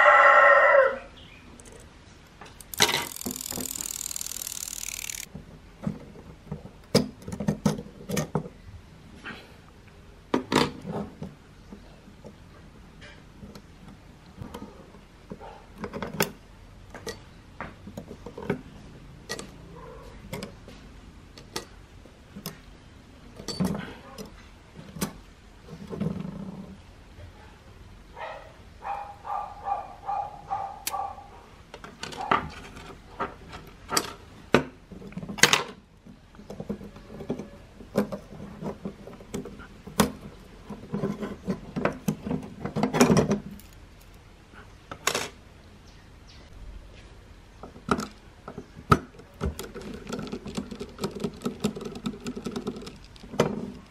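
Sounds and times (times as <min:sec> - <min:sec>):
metal clock parts clinking: 0:02.6 - 0:05.3.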